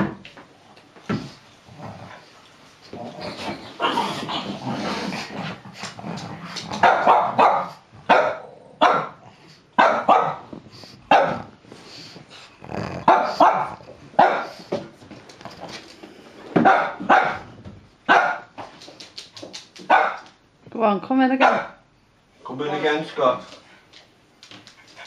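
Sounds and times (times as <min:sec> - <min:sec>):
dog growling: 0:01.7 - 0:06.8, 0:11.4 - 0:14.1
dog barking: 0:06.8 - 0:09.2, 0:09.8 - 0:10.5, 0:11.1 - 0:11.5, 0:13.0 - 0:14.6, 0:16.6 - 0:17.4, 0:18.1 - 0:18.5, 0:19.9 - 0:20.2, 0:21.4 - 0:21.8.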